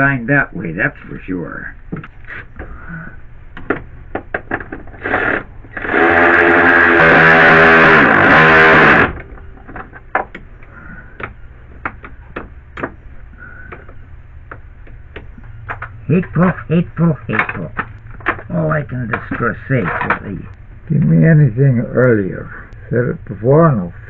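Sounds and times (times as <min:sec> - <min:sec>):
electric ratchet motor whine: 0:05.0 - 0:09.2.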